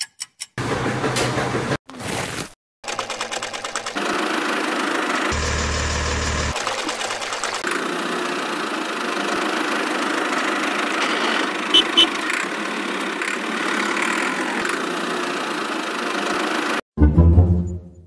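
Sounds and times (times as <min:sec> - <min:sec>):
toy tractor motor humming: 0:02.9 - 0:16.8.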